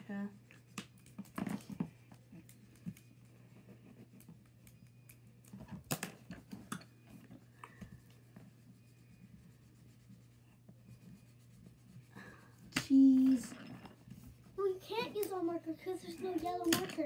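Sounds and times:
markers scratching on paper: 0.2 - 5.5, 7.3 - 16.8.

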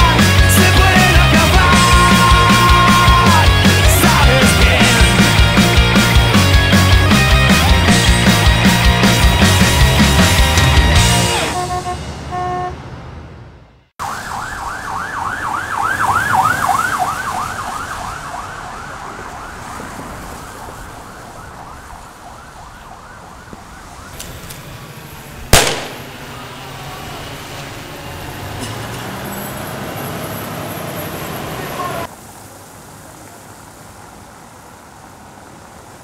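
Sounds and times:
rock band chord: 0.0 - 11.6
street noise: 0.0 - 36.0
siren yelping: 14.0 - 24.2
sharp loud bang: 25.6 - 26.4.

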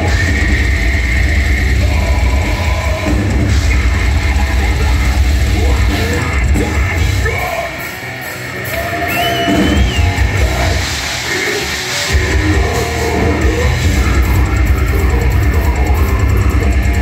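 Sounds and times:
death metal band playing live: 0.0 - 17.0
harsh shouted vocals: 0.0 - 17.0.

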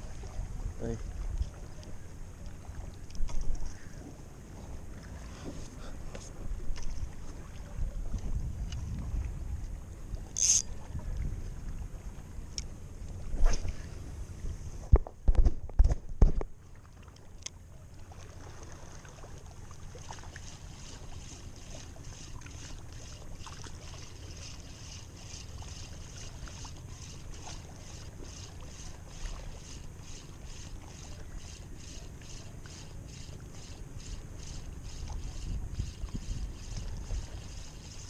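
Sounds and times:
low wind rumble: 5.9 - 16.2
spinning reel ticking: 10.4 - 10.7, 20.4 - 38.0.

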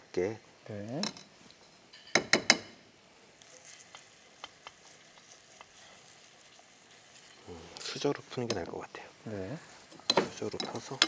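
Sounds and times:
batter sizzling in oil: 0.6 - 11.0
metal spoon clinking: 1.9 - 2.6.

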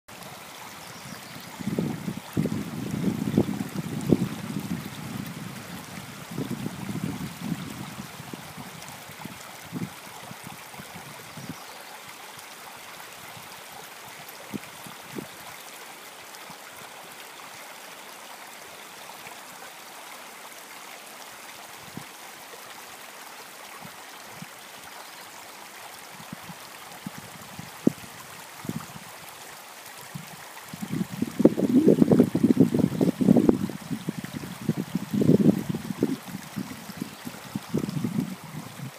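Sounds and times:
creek water running: 0.1 - 38.9
wind rumbling on microphone: 0.7 - 11.6, 14.5 - 15.4, 26.2 - 29.1, 30.0 - 38.9.

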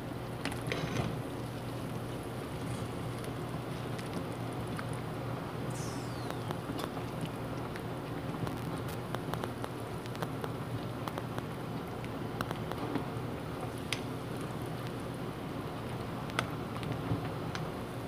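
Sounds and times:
high falling squeak: 5.7 - 6.6
soup bubbling and popping: 5.7 - 12.8.

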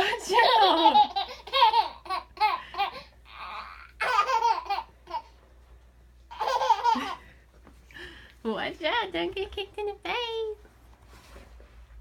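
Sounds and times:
baby laughing: 0.4 - 5.4, 6.3 - 7.3.

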